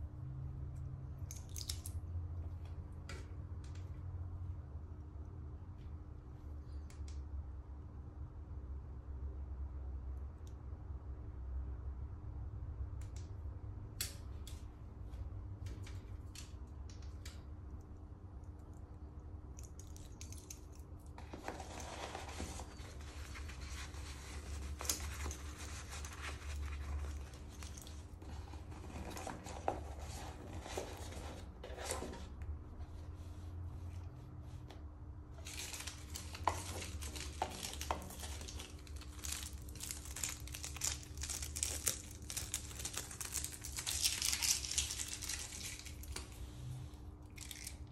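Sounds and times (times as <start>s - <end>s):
plastic wrapping crinkling: 19.8s - 32.1s, 35.4s - 46.4s.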